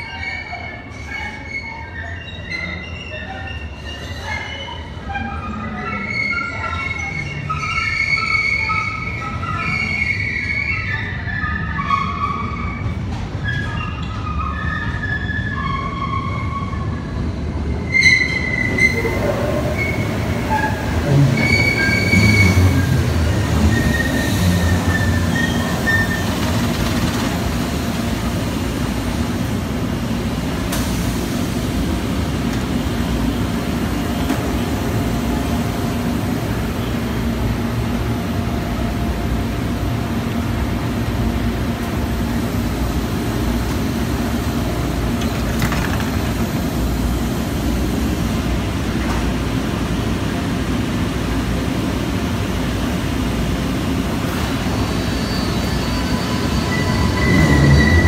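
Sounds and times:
train wheels squealing on track: 0.0 - 29.6, 54.2 - 58.0
low train rumble: 0.0 - 58.0
train standing humming: 15.8 - 58.0.

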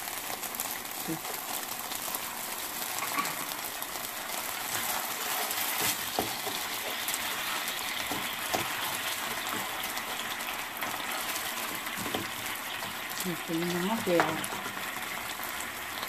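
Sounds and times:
sauce sizzling in frying pan: 0.0 - 16.0
spoon scraping and tapping pan: 3.0 - 3.6.

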